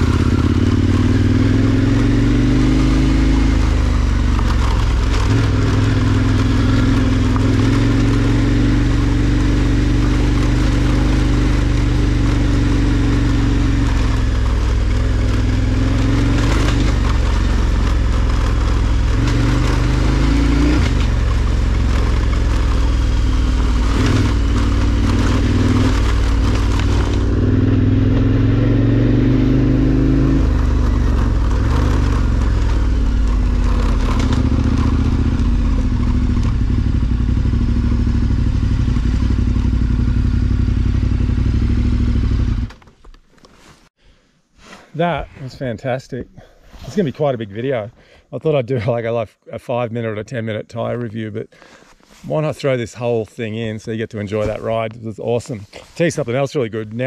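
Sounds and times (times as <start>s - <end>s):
motorcycle engine at low revs: 0.0s - 44.1s, 54.3s - 56.1s
wheels knocking on rough surface: 3.9s - 8.5s, 13.1s - 28.3s, 30.4s - 38.4s.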